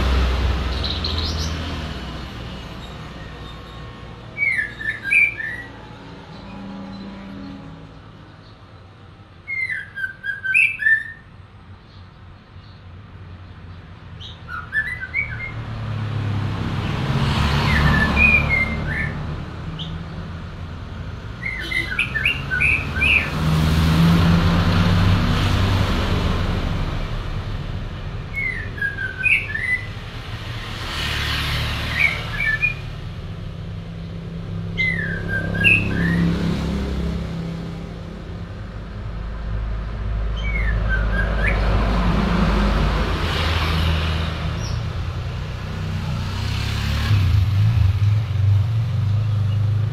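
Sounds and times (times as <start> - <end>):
passing vehicles rumble: 0.0 - 49.9
bird singing: 0.6 - 1.8, 2.5 - 15.6, 17.6 - 20.3, 21.4 - 23.4, 28.2 - 30.1, 31.9 - 33.1, 34.5 - 36.4, 40.3 - 41.7.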